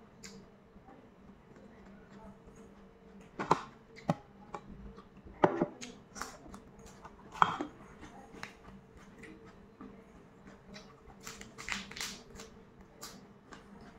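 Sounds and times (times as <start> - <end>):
chewing crisp cucumber: 5.8 - 13.9.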